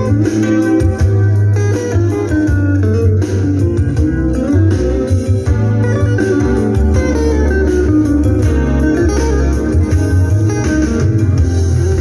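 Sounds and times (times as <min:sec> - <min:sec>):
guitar music from cassette: 0:00.0 - 0:12.0
steady bass line: 0:00.0 - 0:12.0.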